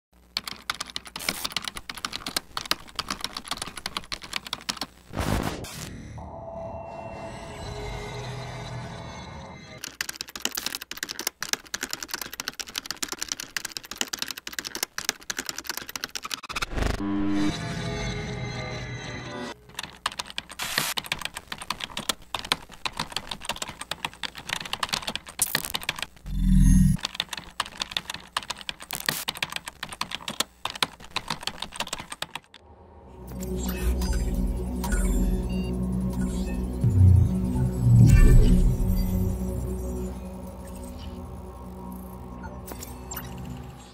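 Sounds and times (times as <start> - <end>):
rapid keyboard typing: 0.2 - 5.0, 9.8 - 16.6, 19.6 - 26.2, 26.8 - 32.6
low electronic music drone: 32.7 - 43.9.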